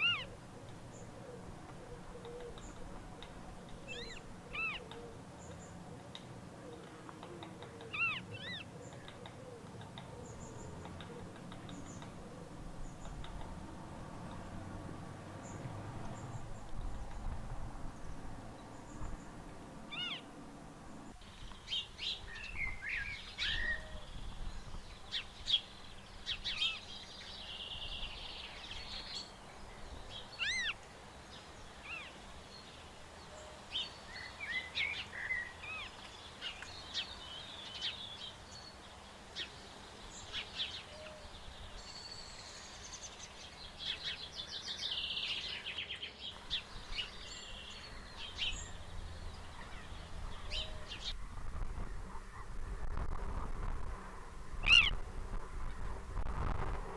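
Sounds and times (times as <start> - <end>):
high mewing bird calls: 0.0 - 13.2, 19.9 - 20.3, 30.0 - 30.8, 54.5 - 55.0
birds chirping and singing: 0.0 - 13.5, 15.4 - 20.3, 21.2 - 51.2, 54.5 - 55.0
low background noise: 0.0 - 56.9.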